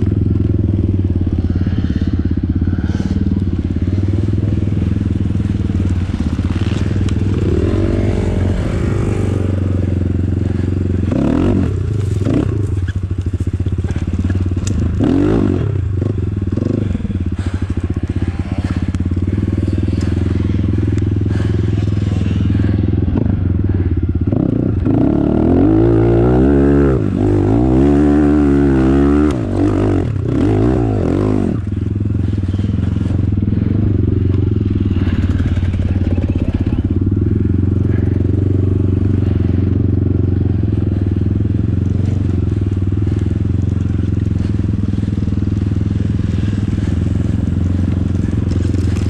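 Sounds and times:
dirt bike engine revving: 0:00.0 - 0:49.0.

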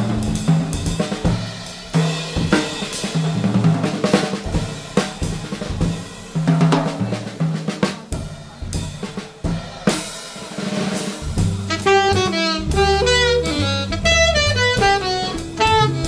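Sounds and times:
jazz drum kit playing: 0:00.0 - 0:16.0
upright bass notes: 0:11.2 - 0:16.0.

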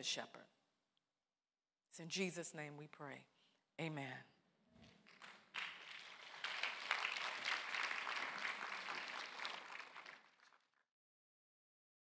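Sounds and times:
audience applauding: 0:04.8 - 0:10.8.

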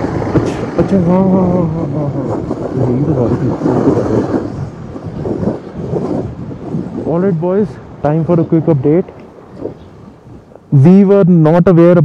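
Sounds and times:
low vehicle rumble: 0:00.0 - 0:12.0
men talking: 0:00.4 - 0:04.5, 0:06.9 - 0:12.0.

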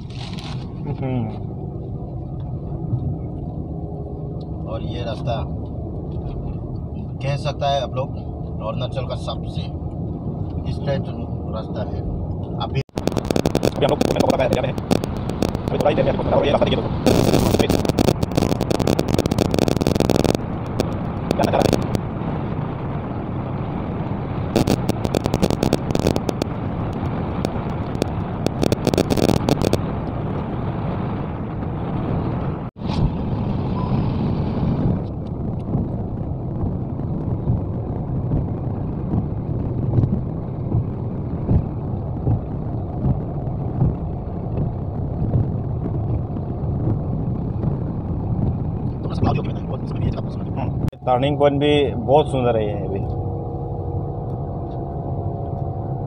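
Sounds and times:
car driving interior noise: 0:00.0 - 0:56.0
hissy crackle: 0:12.9 - 0:22.1, 0:24.4 - 0:32.7.

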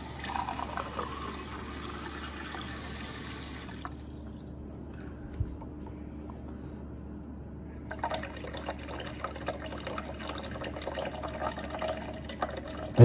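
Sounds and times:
tap water filling a glass mug: 0:00.0 - 0:04.1, 0:07.9 - 0:13.0.

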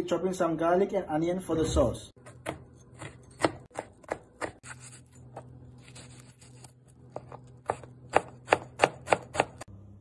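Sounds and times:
knife chopping on plastic board: 0:02.2 - 0:04.7, 0:07.1 - 0:09.7.

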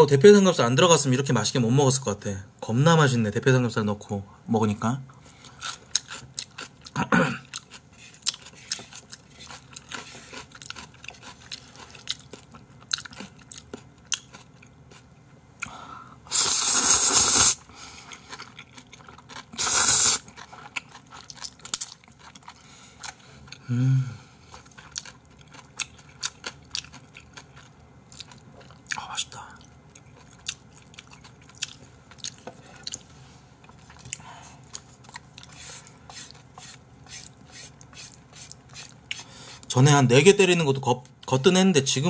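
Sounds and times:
wet chewing: 0:05.3 - 0:15.7, 0:16.4 - 0:23.6, 0:24.5 - 0:29.0, 0:29.6 - 0:39.3
noodles slurping: 0:16.3 - 0:21.4.

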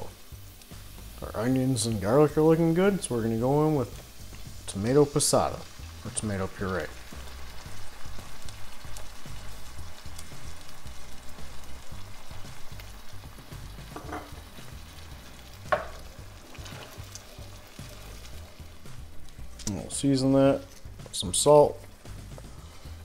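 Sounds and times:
sauce sizzling in a pan: 0:00.0 - 0:23.0
wooden spoon stirring: 0:15.7 - 0:22.6.

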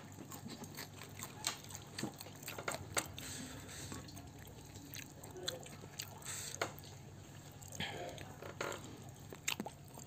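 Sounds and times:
wet eating sounds: 0:00.0 - 0:10.0
fingers smacking on food: 0:09.3 - 0:10.0.

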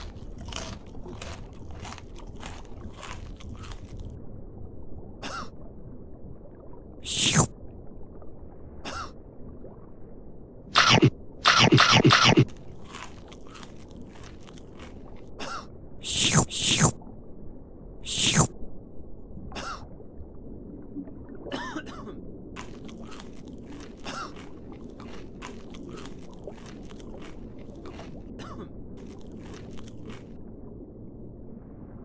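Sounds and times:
crunchy chewing and munching: 0:00.0 - 0:04.2, 0:10.8 - 0:16.9, 0:22.6 - 0:30.4
underwater ambience: 0:02.2 - 0:32.0
person coughing: 0:21.5 - 0:22.2, 0:24.1 - 0:24.4.

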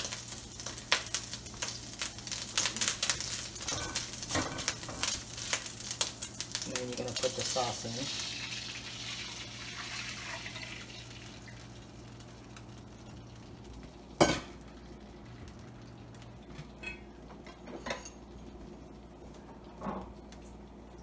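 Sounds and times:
sauce sizzling in a wok: 0:00.0 - 0:16.6.

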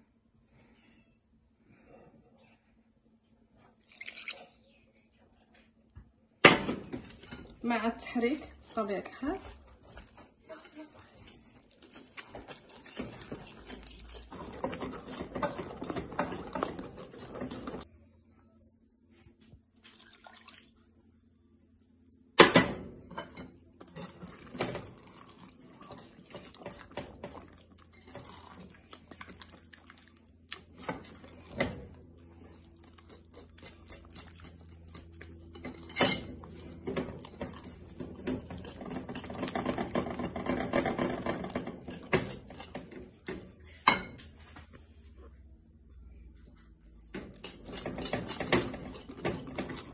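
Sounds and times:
wire whisk beating batter in glass bowl: 0:12.3 - 0:17.9, 0:23.1 - 0:44.0, 0:47.0 - 0:49.9.

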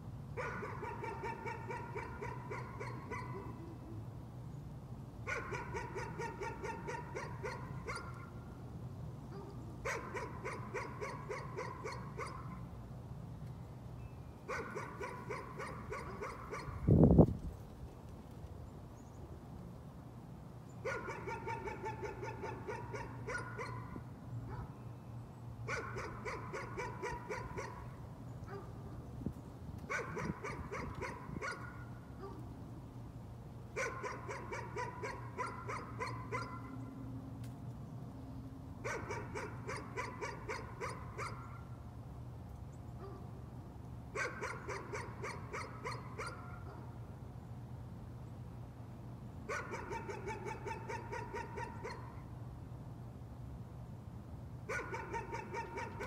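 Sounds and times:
dog barking: 0:00.4 - 0:03.6, 0:05.3 - 0:08.3, 0:09.3 - 0:12.6, 0:14.5 - 0:16.9, 0:20.9 - 0:24.7, 0:25.7 - 0:27.9, 0:28.5 - 0:28.7, 0:29.9 - 0:32.4, 0:33.8 - 0:36.8, 0:38.8 - 0:41.6, 0:44.2 - 0:46.9, 0:49.5 - 0:52.2, 0:54.7 - 0:56.0.

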